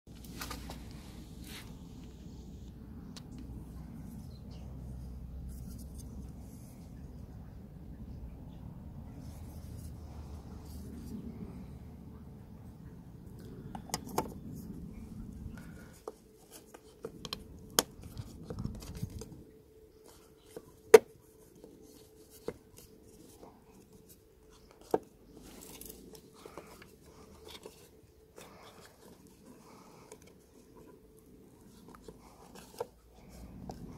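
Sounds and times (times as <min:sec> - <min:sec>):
light plastic scraping: 0:13.6 - 0:33.9.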